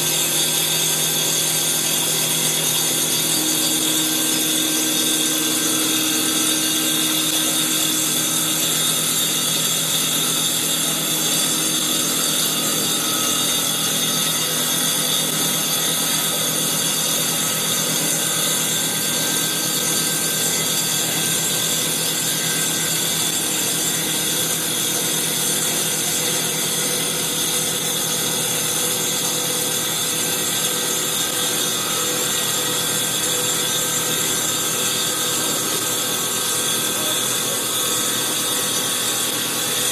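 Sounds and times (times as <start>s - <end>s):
saw blade cutting wood whine: 0.0s - 39.9s.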